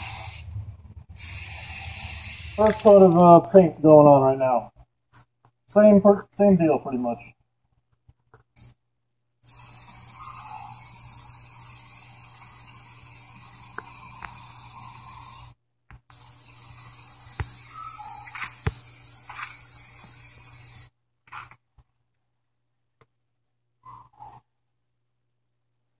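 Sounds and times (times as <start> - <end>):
spray paint can hissing: 0.0 - 3.5, 8.6 - 8.8, 9.4 - 21.6.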